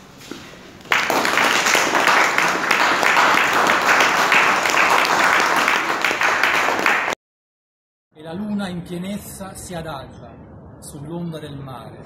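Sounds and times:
audience applauding: 0.8 - 7.2.

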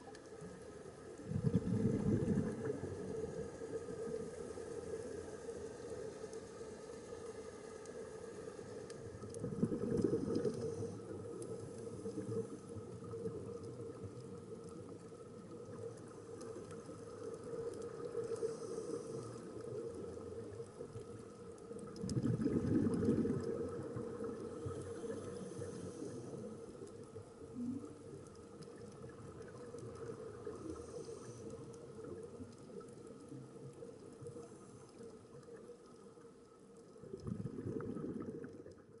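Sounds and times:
muffled underwater rush: 0.6 - 6.1, 8.2 - 36.1, 36.7 - 39.0
regulator exhaled bubbles: 1.3 - 2.8, 22.0 - 24.4.

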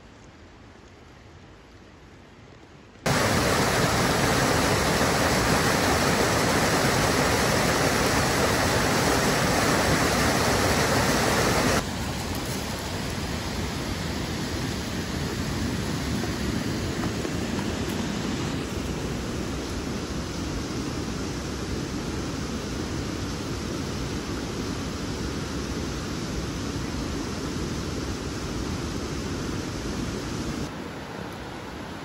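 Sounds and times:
stream cascading over boulders: 3.0 - 21.7.

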